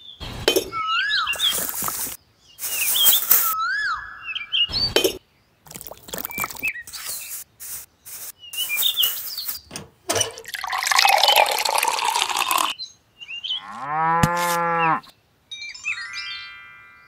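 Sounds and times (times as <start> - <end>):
water pouring and splashing: 1.4 - 3.6, 5.7 - 7.8, 10.1 - 12.7
cow mooing: 13.6 - 15.0.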